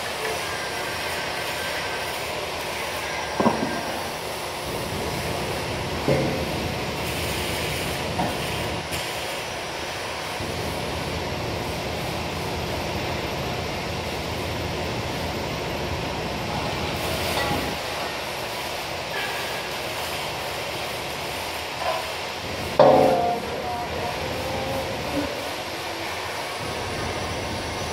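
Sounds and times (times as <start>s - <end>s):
sharp metal clank: 22.8s - 23.6s.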